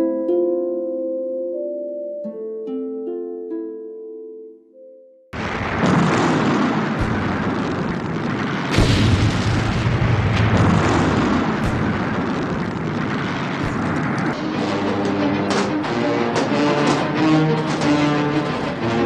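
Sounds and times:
rumble of explosions: 0:05.4 - 0:19.0
sharp cracks and booms: 0:05.4 - 0:19.0.

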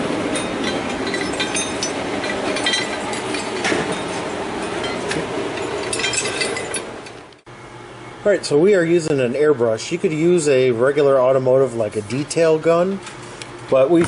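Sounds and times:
steady shop rumble: 0:00.0 - 0:14.0
metal parts clinking and rattling: 0:00.3 - 0:07.2.

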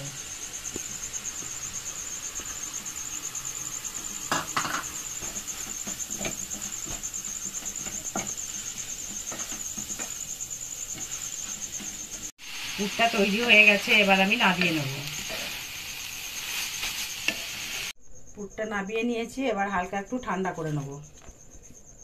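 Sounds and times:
wooden spatula scraping wok: 0:00.0 - 0:17.9
knocks against pan: 0:04.3 - 0:04.9.

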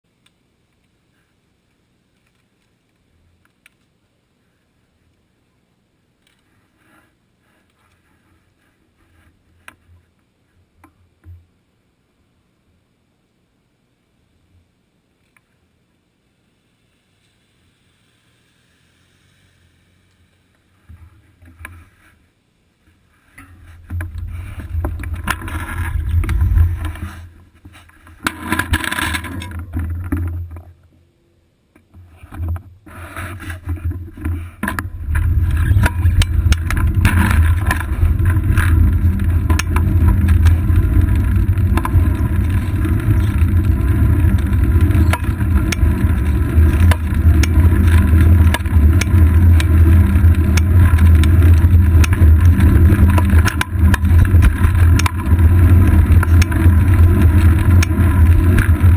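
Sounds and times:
wind and road rumble: 0:23.2 - 0:31.0, 0:32.0 - 0:58.9.

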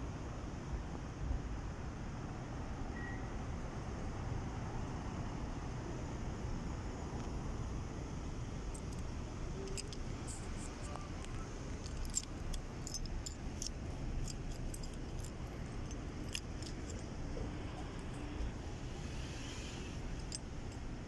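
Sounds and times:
steady low rumble: 0:04.6 - 0:21.0
metallic jingling and clinking: 0:08.7 - 0:19.0, 0:20.0 - 0:21.0.

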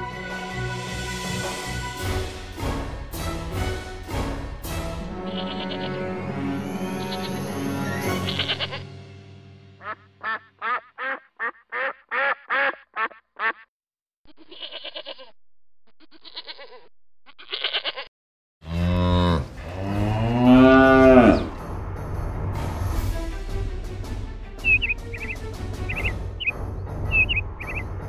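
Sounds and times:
duck quacking: 0:09.8 - 0:13.7
cow mooing: 0:18.6 - 0:21.6.

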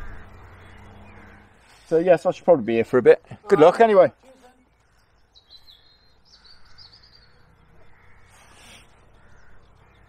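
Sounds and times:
high bird chirps: 0:04.4 - 0:10.0.

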